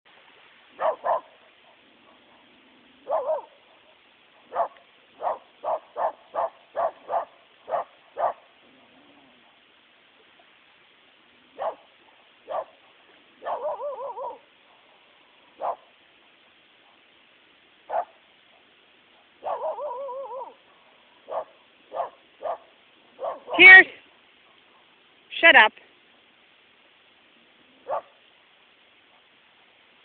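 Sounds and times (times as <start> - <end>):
dog barking: 0.8 - 8.5, 11.5 - 15.0, 15.6 - 15.9, 17.9 - 25.0, 27.8 - 28.2
dog wavering call: 13.4 - 14.5, 19.4 - 20.6.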